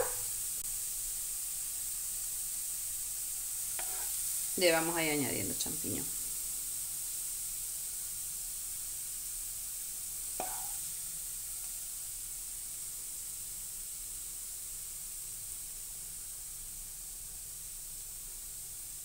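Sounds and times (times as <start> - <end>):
wooden spoon knocking on pan: 0.0 - 0.3, 10.4 - 10.8
steady high hiss: 0.0 - 19.0.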